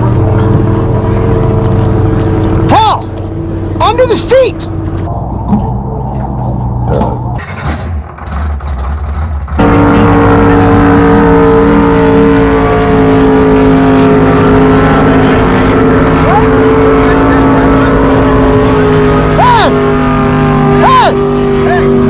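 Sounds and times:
boat engine running: 0:00.0 - 0:22.0.

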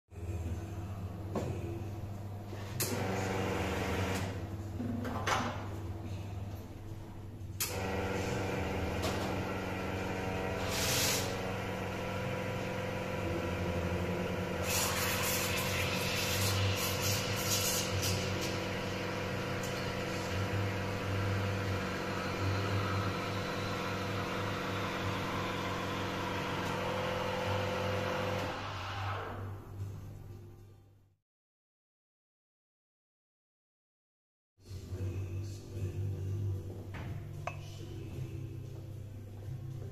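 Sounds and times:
espresso machine pump humming: 0:02.8 - 0:04.4, 0:07.6 - 0:28.6
steam wand hissing: 0:10.6 - 0:11.4, 0:14.6 - 0:18.4.

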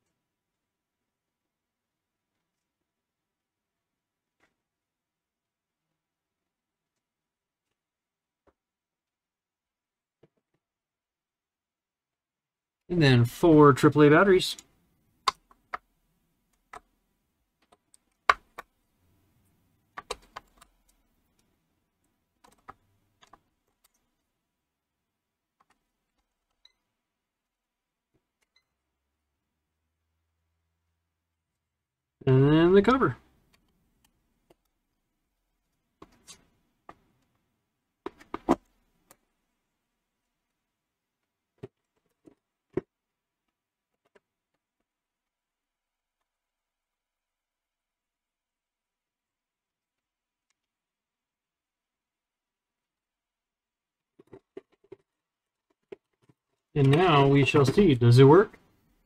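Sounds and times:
plastic clicks and knocks: 0:54.2 - 0:57.0.

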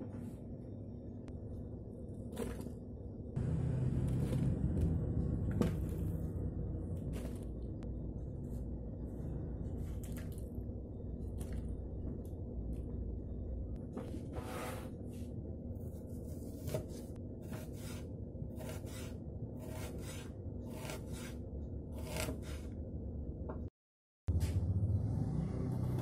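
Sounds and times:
low steady hum: 0:00.0 - 0:23.7
knife slicing onion on board: 0:16.2 - 0:22.7.

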